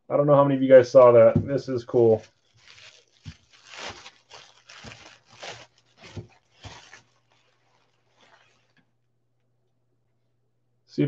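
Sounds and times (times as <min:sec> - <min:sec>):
tissue paper rustling: 0:01.9 - 0:08.8.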